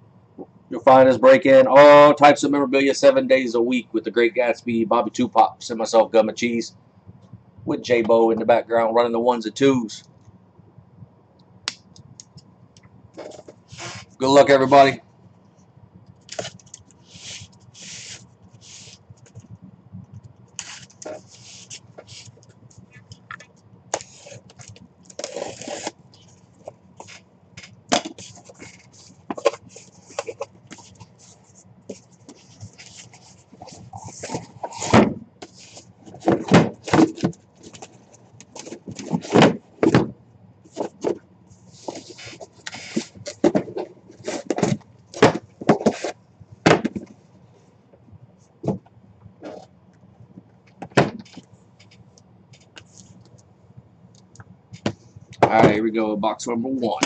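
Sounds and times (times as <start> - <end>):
cardboard scraping and rustling: 13.2 - 14.9, 16.3 - 19.4, 20.6 - 22.4, 24.0 - 40.1, 40.7 - 47.0
boxes knocking on table: 44.5 - 47.1.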